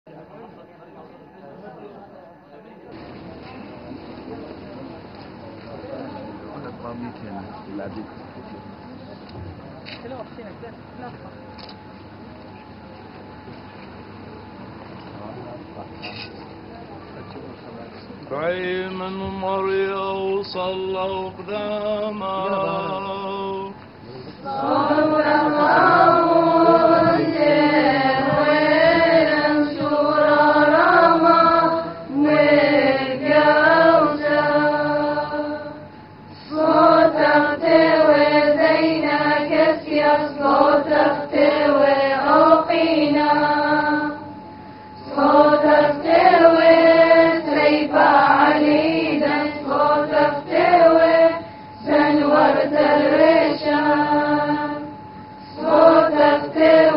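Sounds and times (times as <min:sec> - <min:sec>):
voices chanting a hymn: 0:18.4 - 0:56.9.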